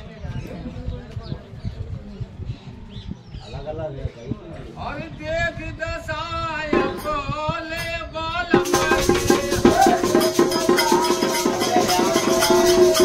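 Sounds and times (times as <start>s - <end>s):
person singing folk song: 5.5s - 13.0s
fast percussion with jingling rattles: 8.5s - 13.0s.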